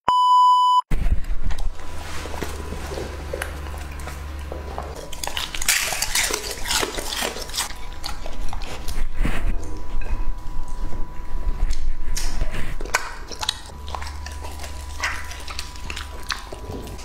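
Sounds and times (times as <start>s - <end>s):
dog chewing and crunching food: 1.1s - 17.0s.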